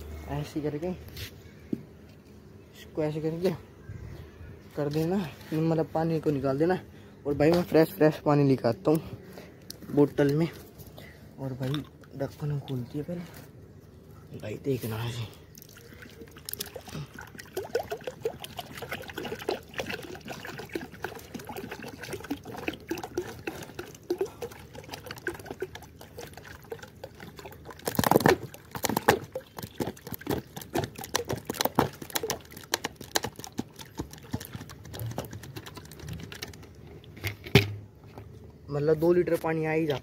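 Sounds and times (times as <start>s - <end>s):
water pouring into a bowl: 15.5s - 34.7s.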